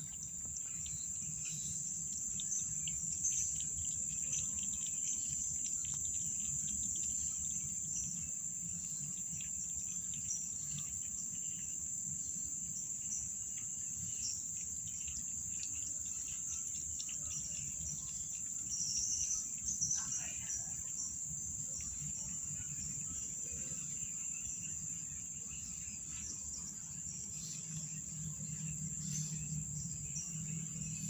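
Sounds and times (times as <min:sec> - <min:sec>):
high-pitched insect trill: 0:00.0 - 0:31.0
kitten lapping water: 0:02.1 - 0:07.6.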